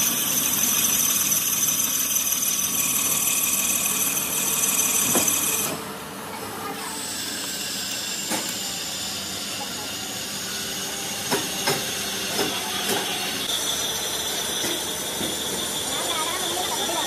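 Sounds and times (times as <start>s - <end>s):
metal lathe cutting whine: 0.0s - 6.1s, 7.0s - 17.0s.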